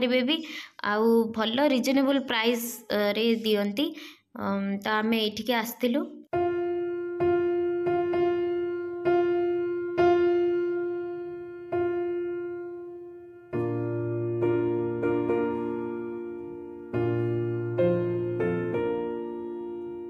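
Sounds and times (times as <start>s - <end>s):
gentle piano melody: 6.3s - 20.0s.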